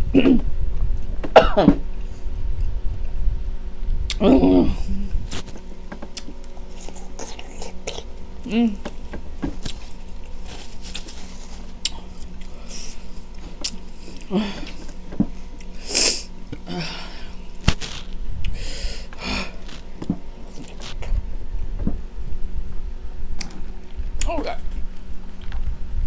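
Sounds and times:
person sniffing and snorting: 0:15.7 - 0:16.3.

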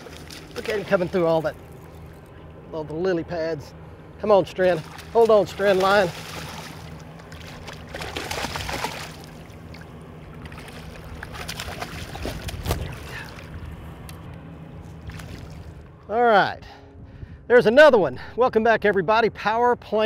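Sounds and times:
water sloshing against boat: 0:00.0 - 0:16.2
steady low hum: 0:00.0 - 0:20.0
fish splashing at water surface: 0:04.8 - 0:13.5.

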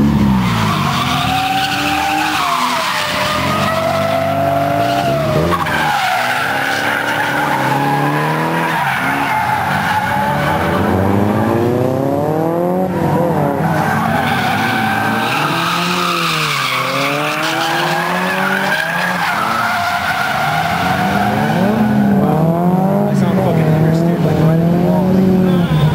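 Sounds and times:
engines revving: 0:00.0 - 0:25.9
tyres squealing: 0:00.4 - 0:10.9, 0:13.6 - 0:22.2.

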